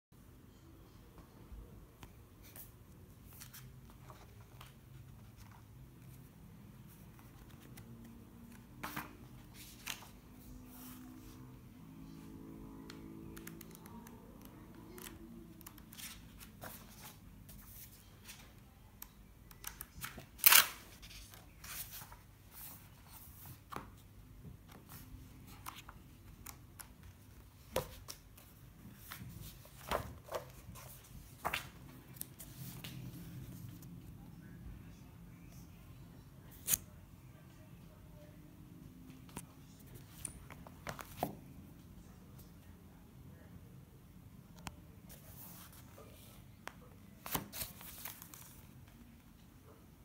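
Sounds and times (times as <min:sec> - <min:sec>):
paper pages turning: 0:06.9 - 0:10.2, 0:24.7 - 0:33.9, 0:47.2 - 0:49.0.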